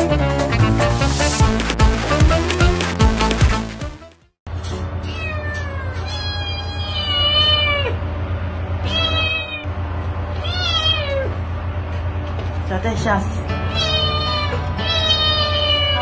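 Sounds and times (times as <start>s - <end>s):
brass jazz music: 0.0s - 4.4s
cat meowing: 5.1s - 8.0s, 8.8s - 9.7s, 10.4s - 11.4s, 13.7s - 16.0s.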